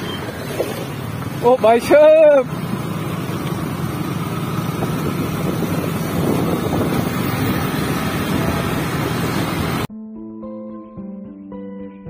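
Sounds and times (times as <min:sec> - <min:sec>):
motorcycle engine running: 0:00.0 - 0:09.9
wind rushing over microphone: 0:04.6 - 0:09.9.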